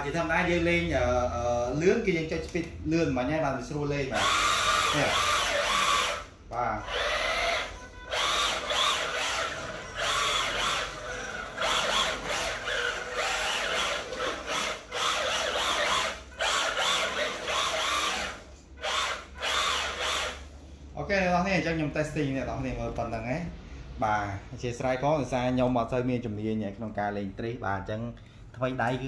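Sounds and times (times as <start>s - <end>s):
remote-control car motor whirring: 4.2s - 6.3s, 6.9s - 20.5s.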